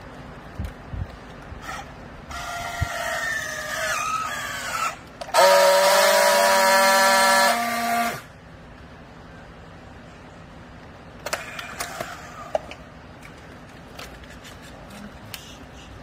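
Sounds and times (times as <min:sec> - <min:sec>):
strapping tool motor whining: 0:03.8 - 0:08.3.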